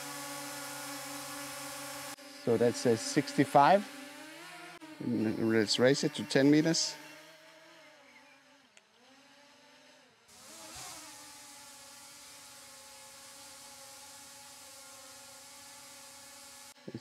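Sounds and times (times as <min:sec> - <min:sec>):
drone propellers whining: 0:00.0 - 0:12.5.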